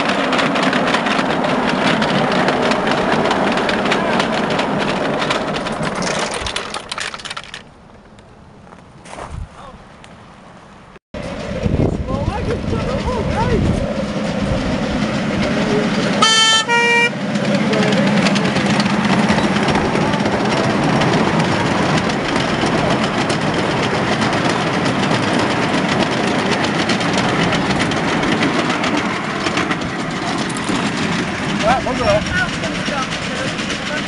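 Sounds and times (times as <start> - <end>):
wheels clicking on rails: 0.0 - 8.8, 11.2 - 34.0
train rumbling past: 0.0 - 34.0
locomotive horn toots: 16.1 - 17.8.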